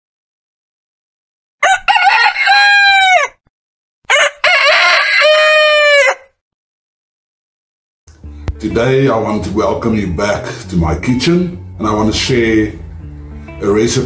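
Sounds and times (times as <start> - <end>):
rooster crowing: 1.6 - 3.4, 4.1 - 6.4.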